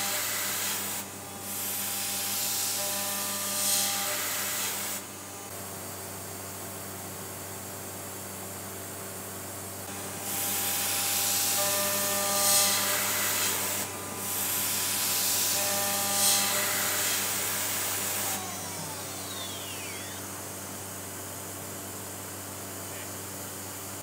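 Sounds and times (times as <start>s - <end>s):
end mill cutting aluminium: 9.9s - 20.7s
machine humming: 9.9s - 23.8s
spindle whine falling: 18.4s - 20.5s.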